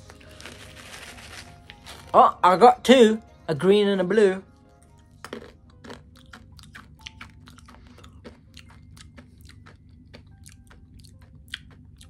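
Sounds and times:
hard candies crunched in mouth: 0:00.0 - 0:02.2, 0:05.2 - 0:12.0.

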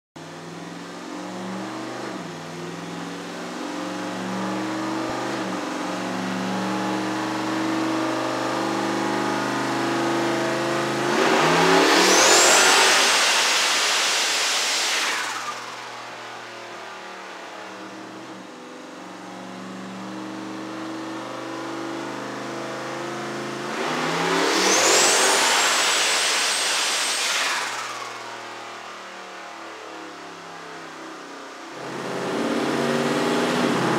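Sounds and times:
turbo engine revving on a dyno: 0:00.2 - 0:33.9
turbo hiss and whistle: 0:11.4 - 0:15.9, 0:24.0 - 0:28.2.

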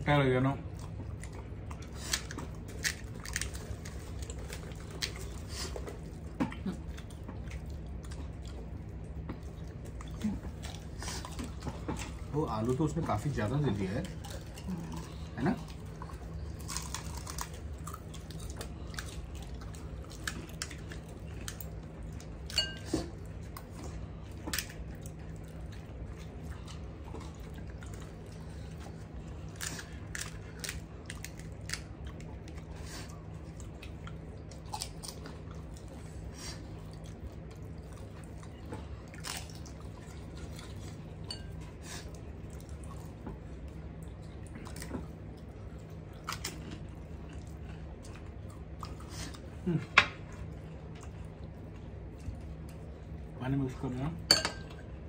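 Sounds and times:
steady low hum: 0:00.0 - 0:55.0
chewing: 0:00.6 - 0:53.4
crisp puris cracking and crunching: 0:02.1 - 0:05.4, 0:15.6 - 0:21.7, 0:29.4 - 0:32.6, 0:37.0 - 0:40.9.

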